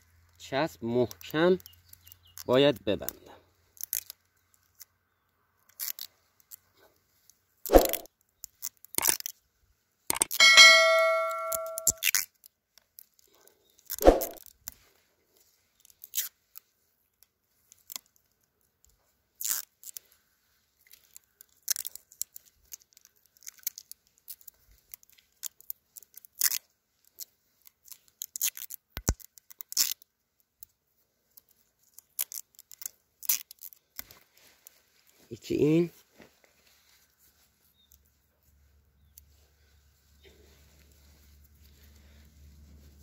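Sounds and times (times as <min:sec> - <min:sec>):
tape crackling and tearing: 0:03.8 - 0:04.9, 0:05.7 - 0:06.6, 0:07.7 - 0:09.4, 0:15.8 - 0:16.7, 0:17.5 - 0:18.4, 0:19.4 - 0:20.2, 0:20.8 - 0:35.2
chime ringing: 0:10.4 - 0:12.0.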